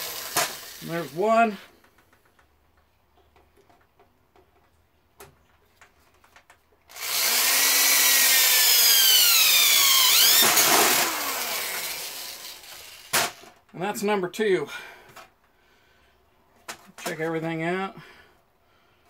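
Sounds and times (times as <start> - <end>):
electric drill whining: 0.0 - 1.2, 6.9 - 13.5.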